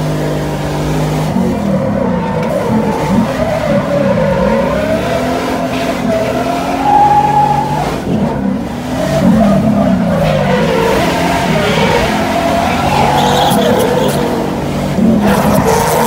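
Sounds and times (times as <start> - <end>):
car engines revving: 0.0 - 16.0
tyres squealing: 9.0 - 14.7.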